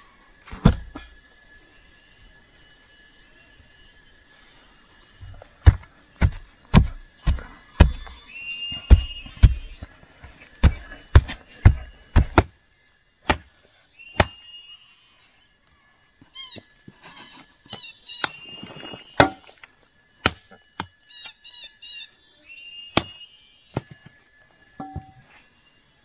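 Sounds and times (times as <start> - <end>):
tool striking wood: 0.5 - 1.1, 5.2 - 9.9, 10.6 - 12.5, 13.3 - 13.5, 19.2 - 19.5, 24.8 - 25.2
bird chirping: 3.1 - 13.0, 13.6 - 15.6, 16.3 - 19.6, 20.5 - 24.0.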